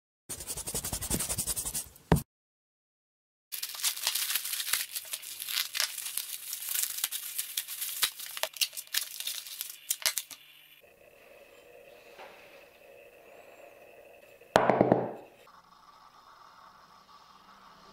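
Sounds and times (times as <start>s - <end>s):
bubble wrap crinkling: 3.5s - 10.5s
plastic mailer tearing: 3.6s - 10.4s.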